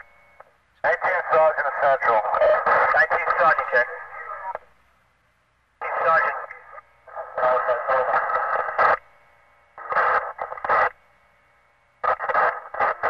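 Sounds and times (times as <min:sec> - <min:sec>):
radio hiss: 0:00.0 - 0:04.8, 0:05.8 - 0:13.0
radio chatter: 0:00.8 - 0:04.7, 0:05.8 - 0:09.2, 0:09.8 - 0:11.0, 0:12.0 - 0:13.0.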